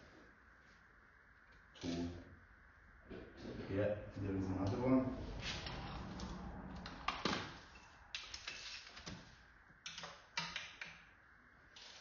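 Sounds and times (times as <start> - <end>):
tools clicking and knocking on metal: 9.9 - 11.0.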